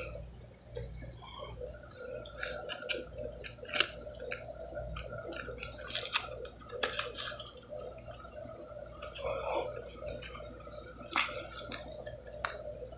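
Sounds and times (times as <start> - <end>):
faint steady hum: 0.0 - 12.9
paper and plastic crinkling: 2.3 - 7.6, 11.1 - 12.7.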